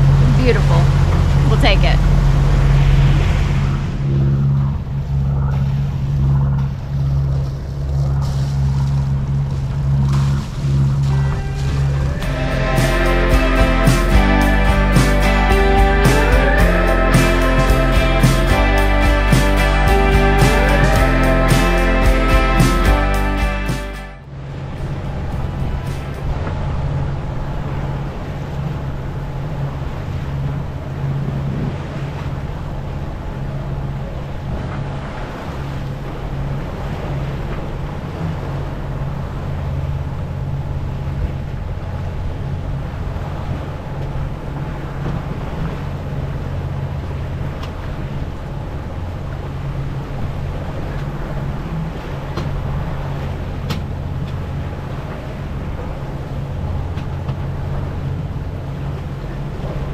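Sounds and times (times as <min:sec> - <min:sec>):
wind on microphone: 0:00.0 - 0:14.8
boat engine humming: 0:00.0 - 0:59.9
water rushing along hull: 0:00.0 - 0:59.9.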